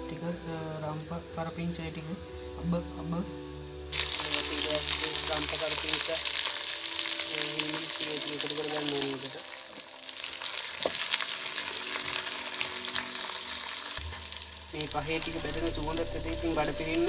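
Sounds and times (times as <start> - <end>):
vegetables sizzling in hot oil: 3.9 - 16.6.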